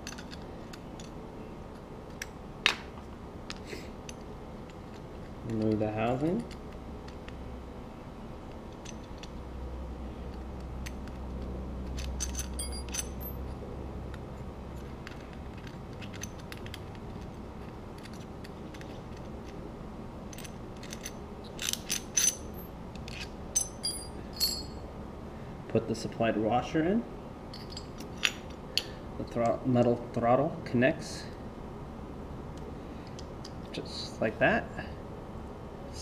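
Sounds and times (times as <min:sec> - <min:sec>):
low steady hum: 0:00.0 - 0:36.0
parts tapping on concrete floor: 0:02.1 - 0:05.0.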